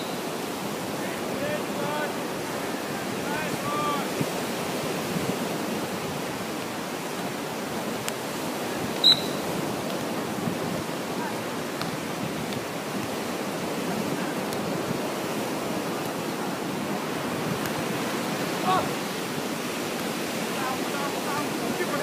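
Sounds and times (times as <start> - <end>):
surf washing: 0.0 - 22.0
wind noise: 0.0 - 22.0
short high-pitched beep: 9.0 - 9.4.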